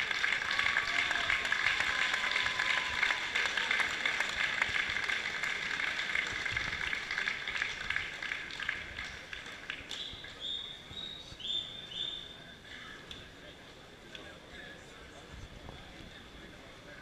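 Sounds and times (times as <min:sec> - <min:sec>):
crowd applauding: 0:00.0 - 0:10.8.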